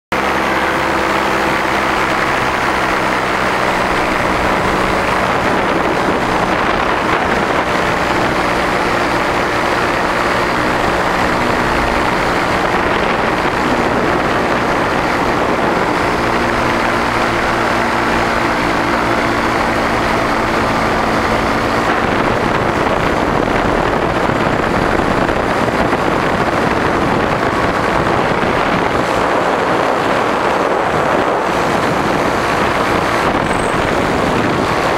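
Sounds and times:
paramotor engine running: 0:00.1 - 0:34.9
wind rushing over microphone: 0:00.1 - 0:34.9.

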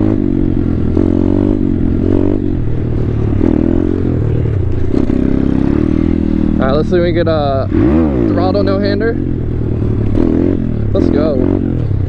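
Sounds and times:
motorbike engine revving: 0:00.0 - 0:12.0.

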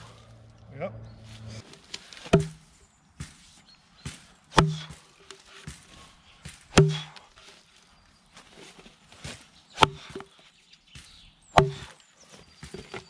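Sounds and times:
axe chopping into log: 0:02.2 - 0:03.4, 0:04.0 - 0:05.8, 0:06.4 - 0:07.3, 0:09.8 - 0:10.3, 0:11.5 - 0:12.0.

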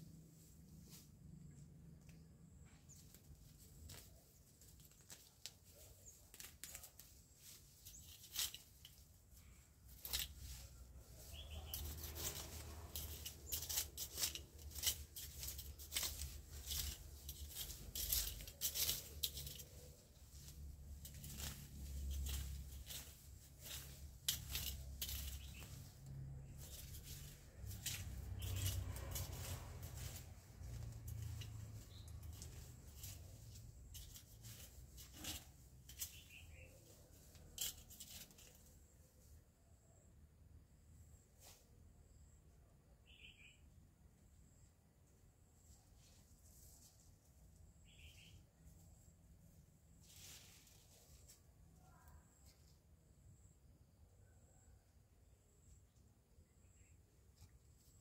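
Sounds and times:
dry rustling and crackling: 0:00.3 - 0:39.4, 0:45.7 - 0:52.8.

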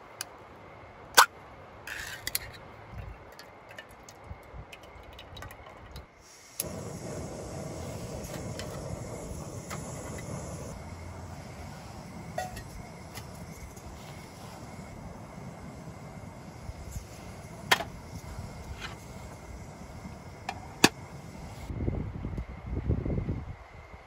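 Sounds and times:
gas burner hissing: 0:06.2 - 0:21.9.

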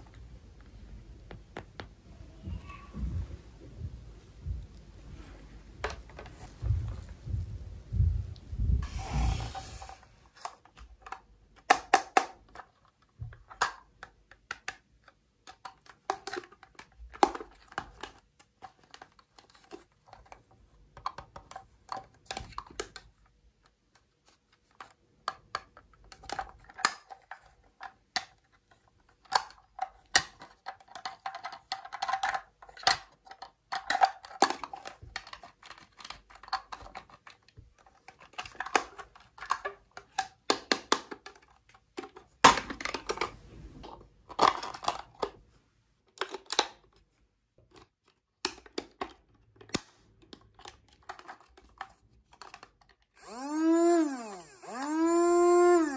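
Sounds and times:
plastic toy clicking and tapping: 0:10.4 - 0:43.3, 0:46.1 - 0:47.0, 0:47.6 - 0:53.1.

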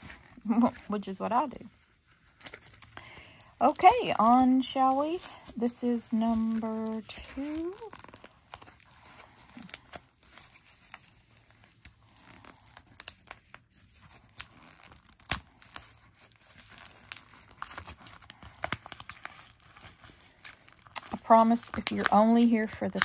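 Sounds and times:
packaging tearing and crinkling: 0:05.0 - 0:23.0.

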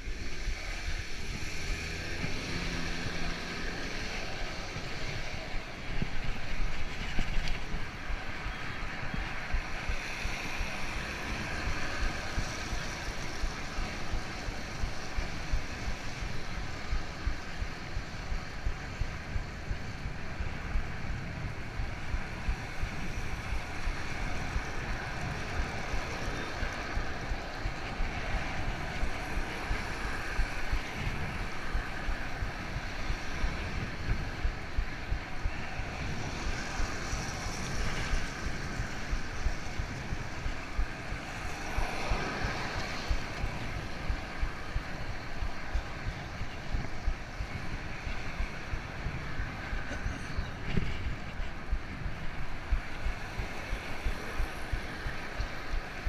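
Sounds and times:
bicycle tyre noise: 0:00.0 - 0:56.0
street traffic: 0:00.0 - 0:56.0
wind rushing over microphone: 0:00.0 - 0:56.0.

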